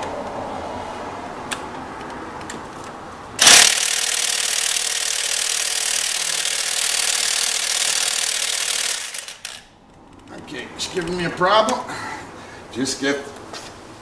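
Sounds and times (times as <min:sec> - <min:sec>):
electric ratchet whirring: 0:03.4 - 0:09.7.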